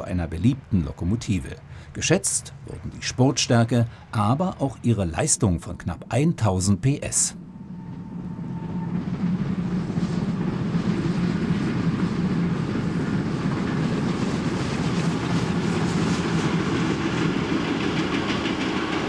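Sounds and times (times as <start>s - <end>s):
steam locomotive working: 0.0s - 19.0s
train coaches clicking over rails: 9.0s - 19.0s.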